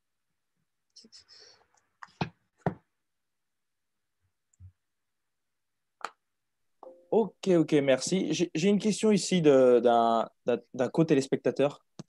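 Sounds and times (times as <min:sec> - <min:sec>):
book knocking and tapping: 0:02.2 - 0:02.9.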